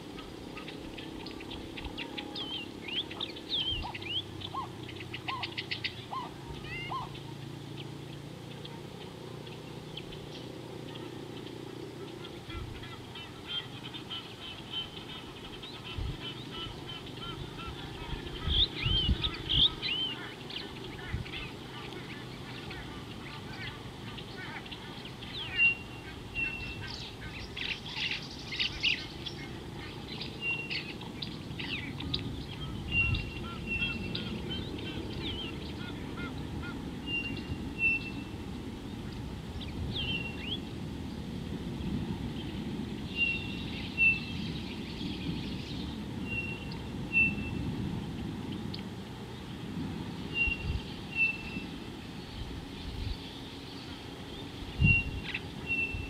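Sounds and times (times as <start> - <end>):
geese honking: 0.0 - 7.5, 8.5 - 38.4
birds chirping: 0.0 - 56.0.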